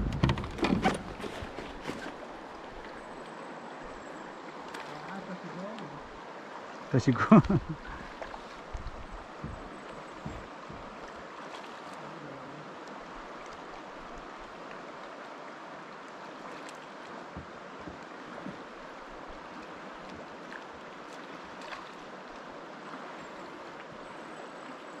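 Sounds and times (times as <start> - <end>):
river water rushing: 0.0 - 25.0
faint knocks: 9.3 - 11.1.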